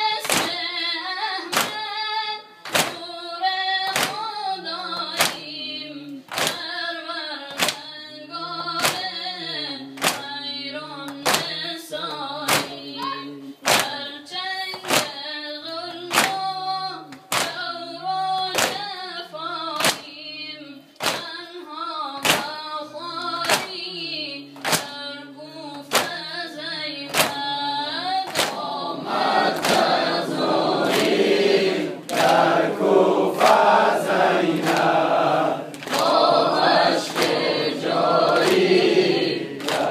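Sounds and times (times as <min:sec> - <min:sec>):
chest slapping in unison: 0:00.2 - 0:00.6, 0:01.5 - 0:01.9, 0:02.6 - 0:03.0, 0:03.9 - 0:04.3, 0:05.1 - 0:05.5, 0:06.3 - 0:06.6, 0:07.5 - 0:07.8, 0:08.8 - 0:09.1, 0:10.0 - 0:10.3, 0:11.1 - 0:11.6, 0:12.4 - 0:12.8, 0:13.6 - 0:14.0, 0:14.8 - 0:15.2, 0:17.1 - 0:17.6, 0:18.6 - 0:18.8, 0:19.8 - 0:20.1, 0:21.0 - 0:21.3, 0:22.2 - 0:22.5, 0:23.4 - 0:23.7, 0:27.1 - 0:27.4, 0:28.3 - 0:39.9
crowd of men singing: 0:03.9 - 0:06.3, 0:08.0 - 0:14.3, 0:26.5 - 0:39.9
male voice chanting over loudspeaker: 0:08.4 - 0:14.0.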